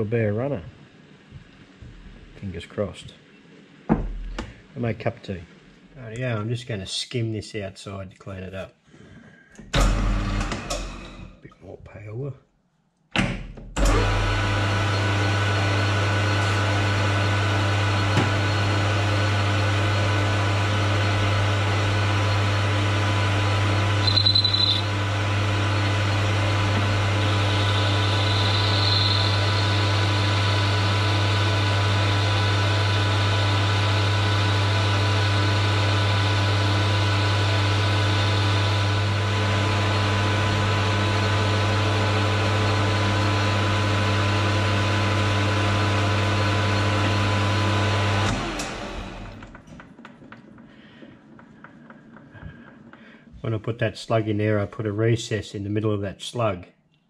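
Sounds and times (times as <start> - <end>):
metal lathe running: 13.8 - 53.0
short higher tone: 24.0 - 24.9.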